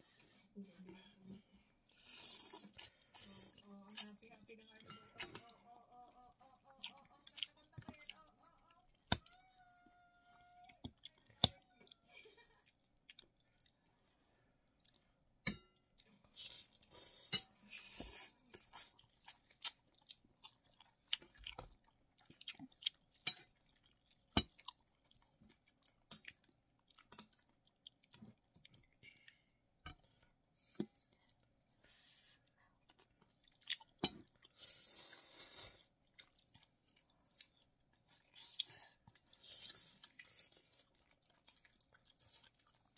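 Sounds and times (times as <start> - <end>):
wet chewing: 1.7 - 42.9
slurping noodles: 2.0 - 3.5, 34.5 - 35.9.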